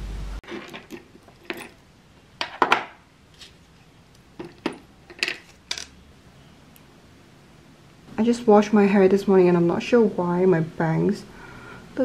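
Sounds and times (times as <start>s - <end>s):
metal rings clinking on stone: 0.7s - 1.8s.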